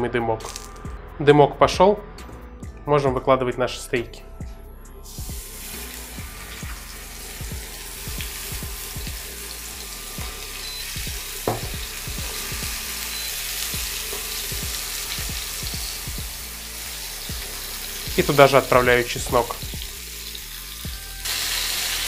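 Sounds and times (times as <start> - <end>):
steaks sizzling in frying pan: 5.1 - 22.0.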